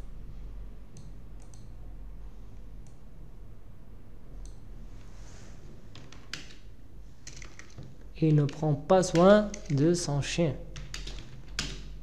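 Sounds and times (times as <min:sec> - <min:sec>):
steady low hum: 0:00.0 - 0:12.0
computer mouse clicks: 0:00.9 - 0:01.8, 0:04.4 - 0:04.6.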